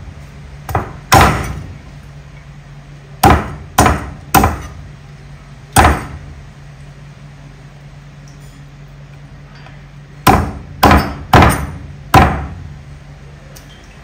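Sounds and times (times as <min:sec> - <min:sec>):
cleaver chopping on wooden block: 0:00.7 - 0:01.6, 0:03.2 - 0:04.7, 0:05.8 - 0:06.2, 0:10.3 - 0:12.6.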